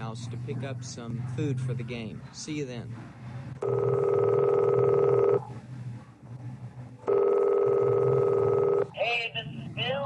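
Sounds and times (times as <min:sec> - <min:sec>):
telephone ringing: 0:03.6 - 0:05.5, 0:07.0 - 0:08.9.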